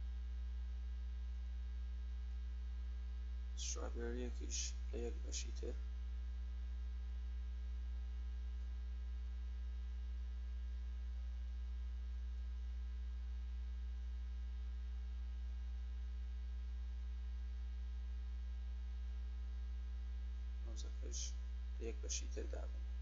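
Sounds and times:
mains hum: 0:00.0 - 0:23.0
faint high steady tones: 0:03.6 - 0:05.7.

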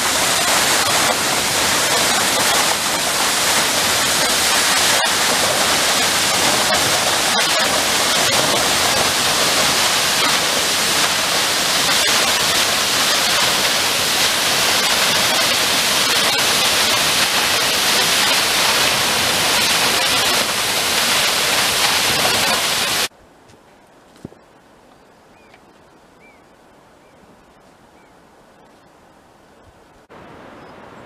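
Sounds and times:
waterfall rushing: 0:00.0 - 0:23.1.

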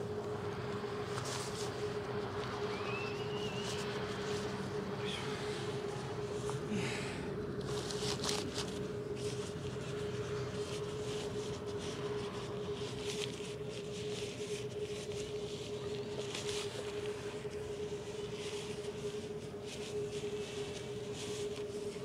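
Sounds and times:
steady hum: 0:00.0 - 0:22.0
camping gear rustling and clicking: 0:07.6 - 0:17.7.

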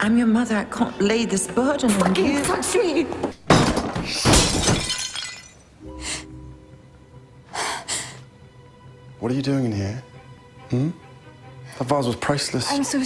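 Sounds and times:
ceramic vase smashing: 0:03.4 - 0:05.8
soft music with held notes: 0:05.8 - 0:13.0.

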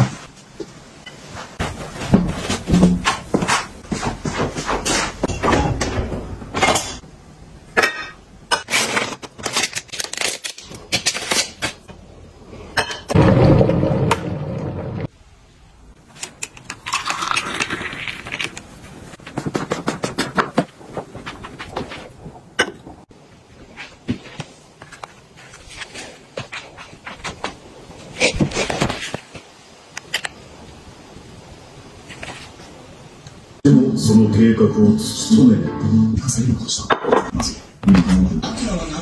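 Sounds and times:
glassware and dishes clinking: 0:07.8 - 0:08.7.

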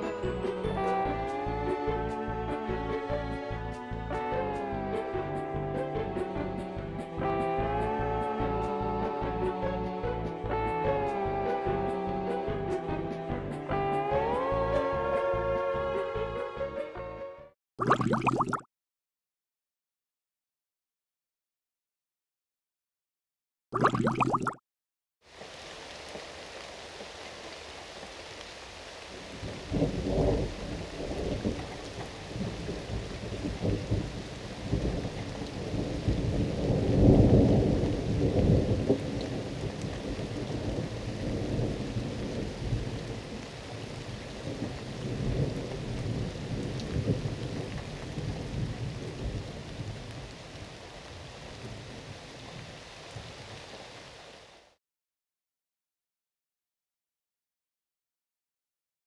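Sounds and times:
steady rain: 0:00.0 - 0:16.3, 0:25.2 - 0:54.8
thunder rumbling: 0:29.3 - 0:52.1.

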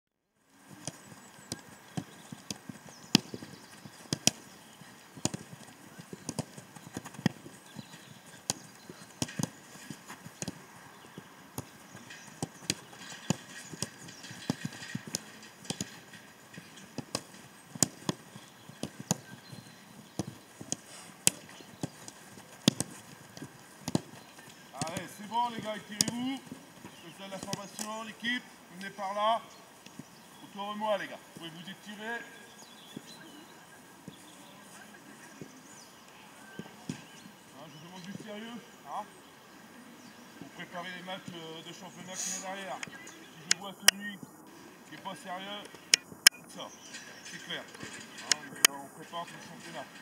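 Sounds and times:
footballs being kicked: 0:00.7 - 0:27.9.

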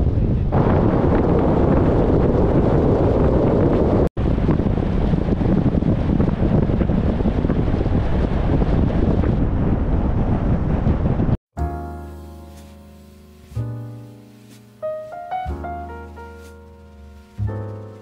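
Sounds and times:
wind buffeting the microphone: 0:00.0 - 0:11.4.

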